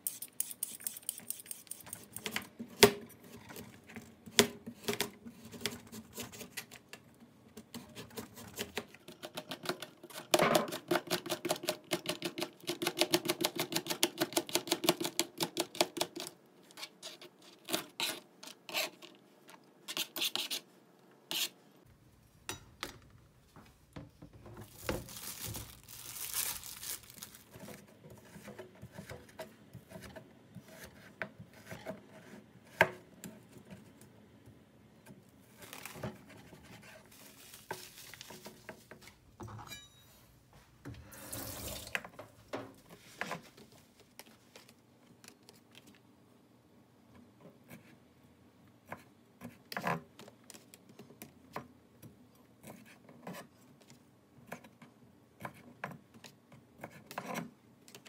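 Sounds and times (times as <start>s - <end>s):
peeler scraping carrot: 0.0s - 2.3s
knocks and scrapes of handling: 40.5s - 45.9s.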